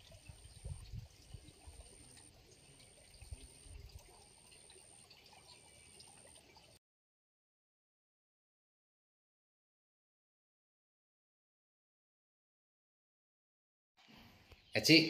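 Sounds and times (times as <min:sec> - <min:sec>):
trickling water: 0:00.0 - 0:06.8.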